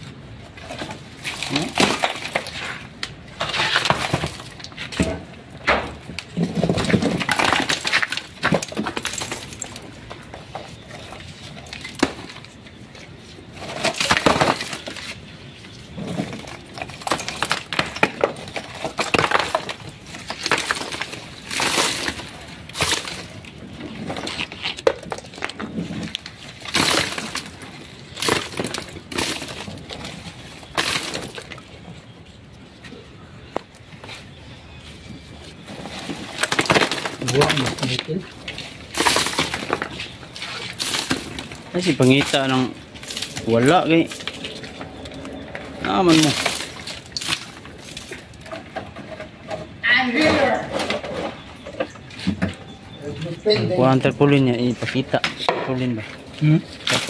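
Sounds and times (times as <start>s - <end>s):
concrete being broken apart: 0.6s - 15.2s, 15.9s - 32.1s, 35.7s - 49.4s, 55.2s - 57.0s
falling pieces chinking: 36.0s - 48.5s.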